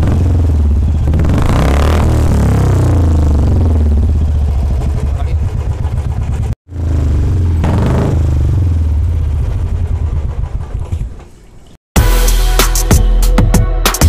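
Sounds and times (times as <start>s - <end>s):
motorcycle engine revving: 0.0s - 11.2s
music: 12.0s - 14.0s.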